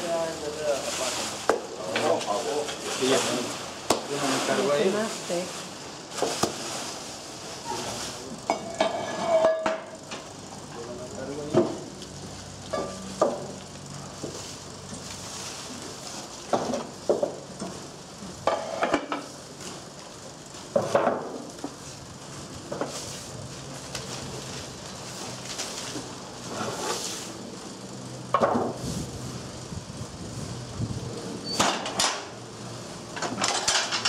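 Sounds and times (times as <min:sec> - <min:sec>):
metal knocks and clatter: 0:33.2 - 0:34.0.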